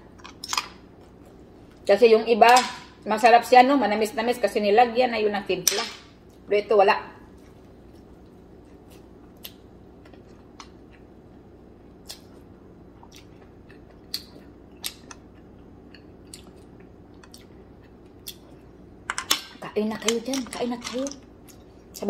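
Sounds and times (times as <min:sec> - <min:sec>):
steady low hum: 0:00.0 - 0:22.0
person chewing: 0:07.3 - 0:18.8.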